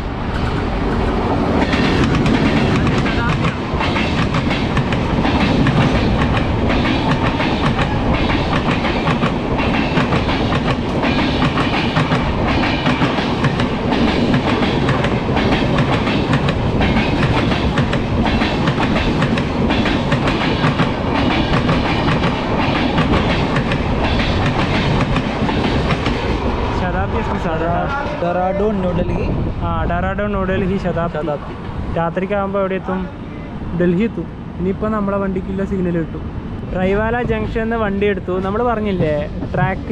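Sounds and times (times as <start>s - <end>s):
train wheels clattering over rail joints: 0.4s - 26.6s.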